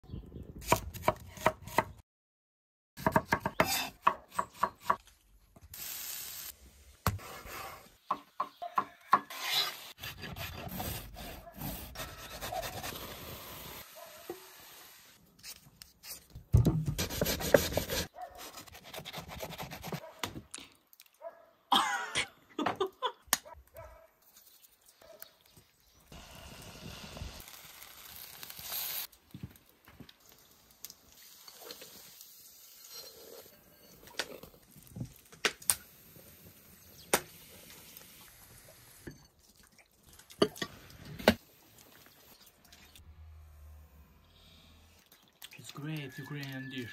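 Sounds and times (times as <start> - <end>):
pancakes sizzling in frying pan: 26.5 - 29.1.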